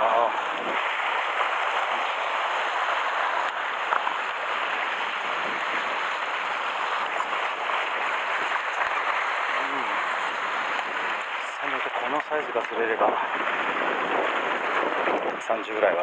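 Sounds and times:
sea waves washing over rocks: 0.0s - 16.0s.

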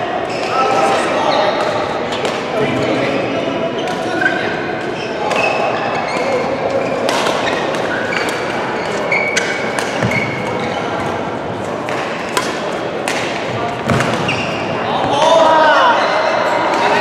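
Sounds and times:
echoing sports hall din: 0.0s - 17.0s
shoes squeaking on floor: 3.7s - 11.2s, 13.8s - 15.2s
rackets striking shuttlecock: 11.7s - 14.4s.

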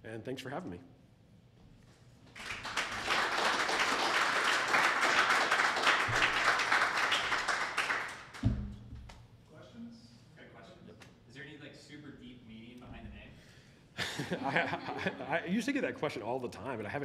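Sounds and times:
audience applauding: 2.3s - 8.4s.

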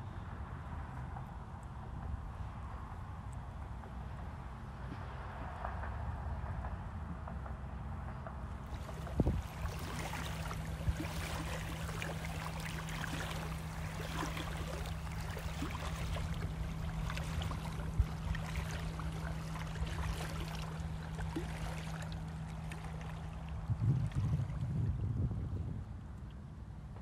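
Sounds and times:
steady low hum: 0.0s - 27.0s
low rumble: 1.8s - 27.0s
wavelets lapping at shore: 8.6s - 25.1s.

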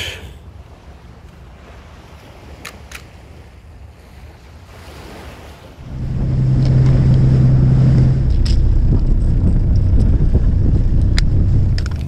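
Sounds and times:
waves washing on shore: 0.0s - 12.0s
wind: 0.0s - 12.0s
loud low hum: 5.8s - 12.0s.

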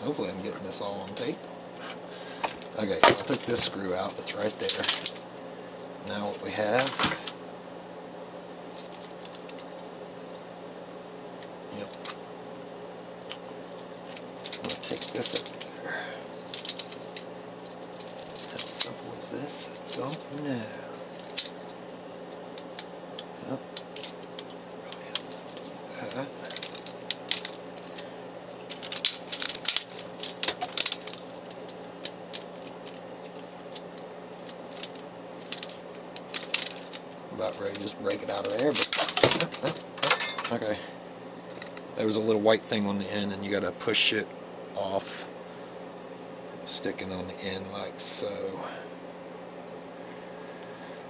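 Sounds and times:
steady low hum: 0.0s - 51.0s
plastic parts clicking and rattling: 2.4s - 5.2s, 8.6s - 9.8s, 14.0s - 15.7s, 16.4s - 18.9s, 23.8s - 40.5s
plastic printer parts clicking: 26.4s - 28.0s, 28.6s - 31.7s, 34.4s - 39.8s.

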